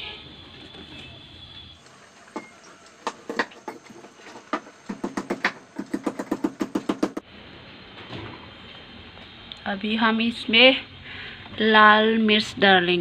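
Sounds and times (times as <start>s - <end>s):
pestle pounding in metal bowl: 3.1s - 7.2s.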